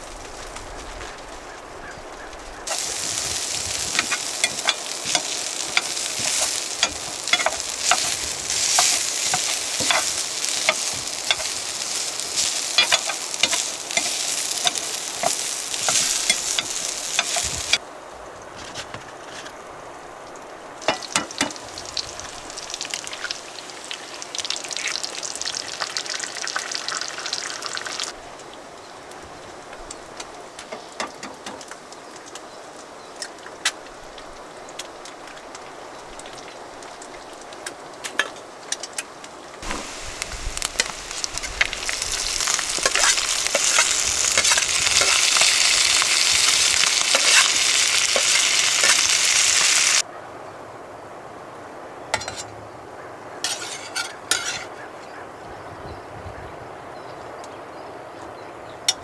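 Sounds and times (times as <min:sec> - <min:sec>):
potatoes sizzling in a skillet: 0:00.0 - 0:17.8, 0:20.8 - 0:50.1, 0:53.4 - 0:54.7
metal spatula scraping a pan: 0:02.7 - 0:17.8, 0:42.4 - 0:49.2, 0:53.4 - 0:54.8.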